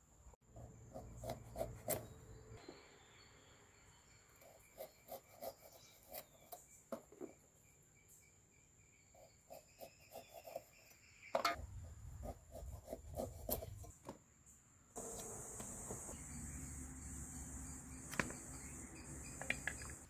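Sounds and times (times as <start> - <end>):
insects buzzing: 15.0 - 20.0.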